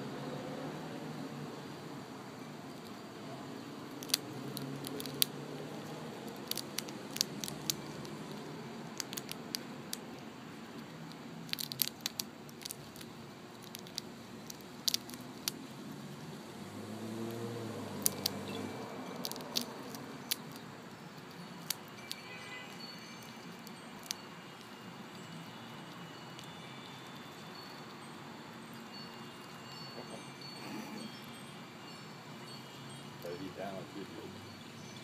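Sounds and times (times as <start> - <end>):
chipmunk gnawing peanut shell: 2.6 - 31.4.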